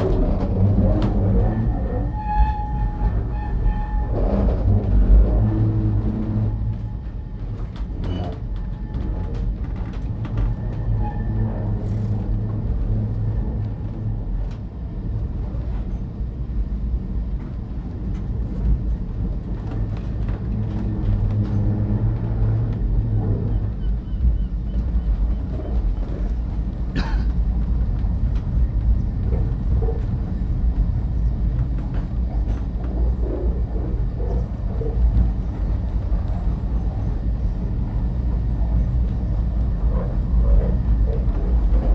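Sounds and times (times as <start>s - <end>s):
tramcar rumbling on track: 0.0s - 41.9s.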